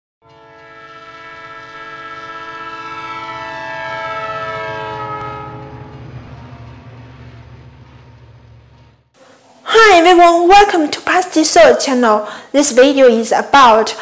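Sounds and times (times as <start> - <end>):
train horn: 0.2 - 7.3
train rumble: 0.4 - 11.7.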